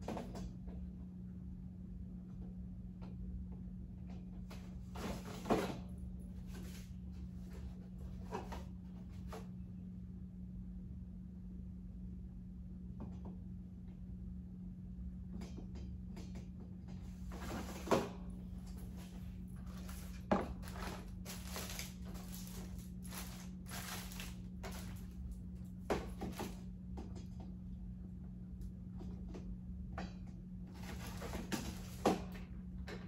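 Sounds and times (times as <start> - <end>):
steady low hum: 0.0 - 33.0
objects rustling and clattering: 4.4 - 9.6, 16.9 - 27.4, 30.1 - 33.0.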